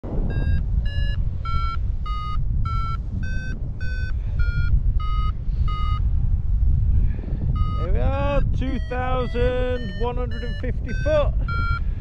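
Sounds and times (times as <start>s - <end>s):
wind rushing on microphone: 0.0s - 12.0s
variometer short beeps: 0.3s - 6.1s, 7.6s - 11.9s.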